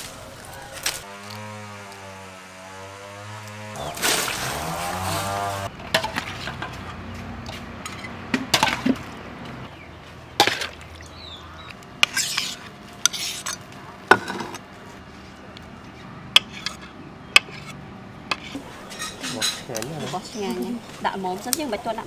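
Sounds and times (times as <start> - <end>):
fruit splashing into liquid: 3.8 - 5.0.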